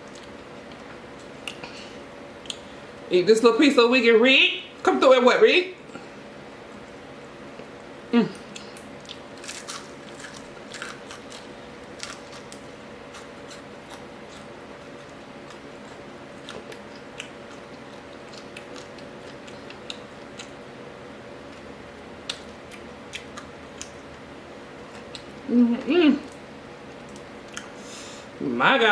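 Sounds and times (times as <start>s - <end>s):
steady low hum: 0.0s - 28.9s
chewing crispy fried fish: 7.5s - 20.8s, 21.4s - 25.4s.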